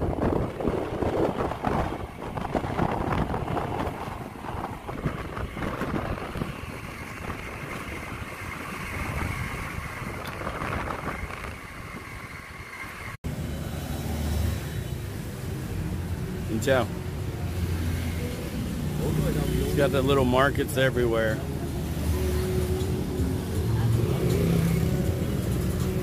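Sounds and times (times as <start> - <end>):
wind buffeting microphone: 0.0 - 13.2.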